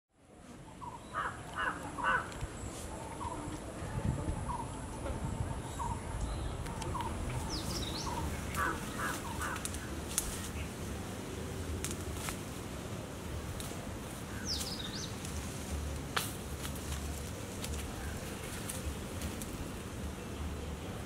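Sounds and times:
crow cawing: 0:01.2 - 0:02.3, 0:08.5 - 0:09.8.

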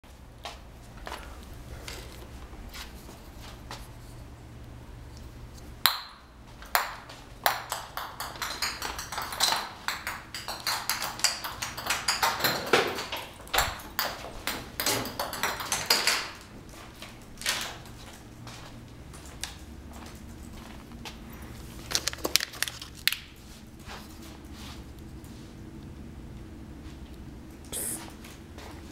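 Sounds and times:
ping pong ball bouncing on wood floor: 0:05.8 - 0:16.4.

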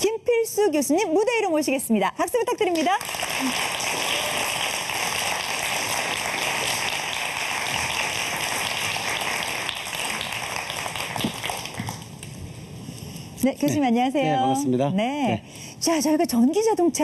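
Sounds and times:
audience applauding: 0:02.9 - 0:12.2.

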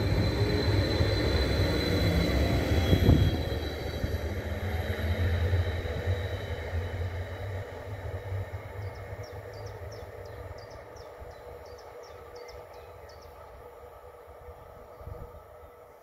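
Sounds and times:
train rumbling along track: 0:00.0 - 0:16.0
bird chirping: 0:08.8 - 0:13.5.

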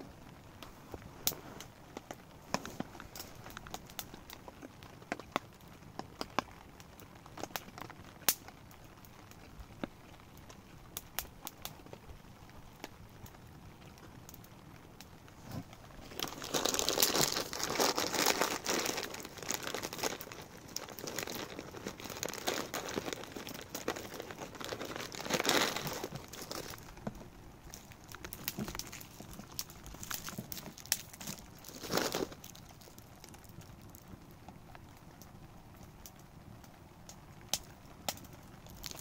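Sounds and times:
crinkling and rustling: 0:00.0 - 0:36.2, 0:37.2 - 0:39.0.

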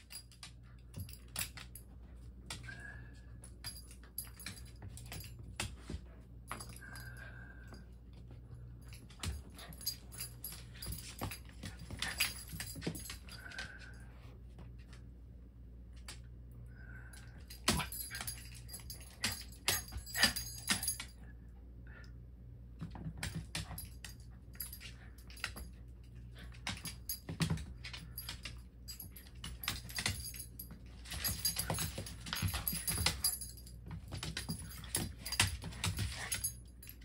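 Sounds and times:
collar tags jingling: 0:06.5 - 0:13.8, 0:17.1 - 0:21.2, 0:23.4 - 0:37.0
dog claws clicking on floor: 0:08.2 - 0:14.0, 0:17.4 - 0:21.2, 0:22.8 - 0:37.0.

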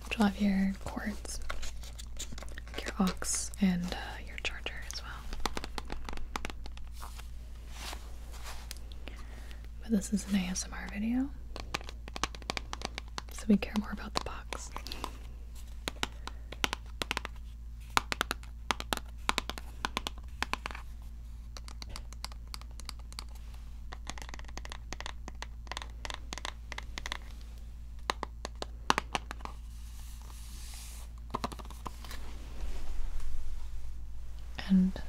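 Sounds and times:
fingernails tapping on small box: 0:23.9 - 0:27.2.

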